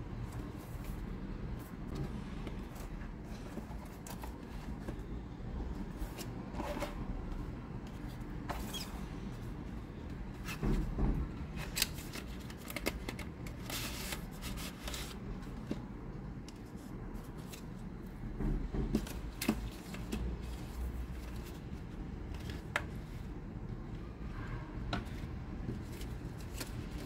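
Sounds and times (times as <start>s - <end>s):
cardboard packaging rustling and scraping: 0.3s - 9.7s, 10.4s - 15.9s, 25.0s - 27.0s.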